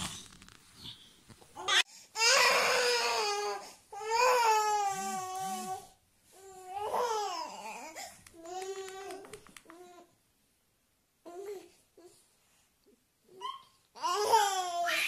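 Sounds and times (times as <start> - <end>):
toddler crying: 1.6 - 5.9, 13.4 - 15.0.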